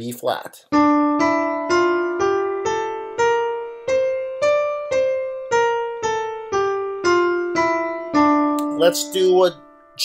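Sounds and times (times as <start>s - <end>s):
piano notes playing a scale: 0.7s - 10.0s.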